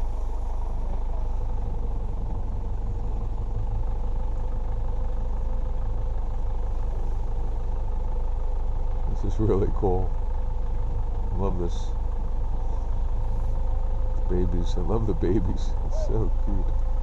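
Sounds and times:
vehicle engine running: 0.0 - 17.0.

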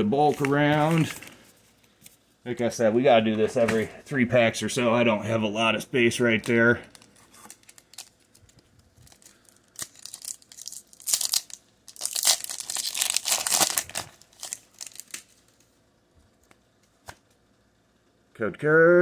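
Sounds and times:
foil wrapper crinkling and tearing: 6.4 - 15.7.

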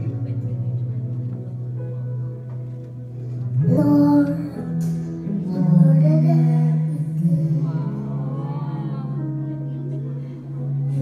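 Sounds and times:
backing music: 0.0 - 11.0
child singing into a microphone: 3.6 - 8.7.

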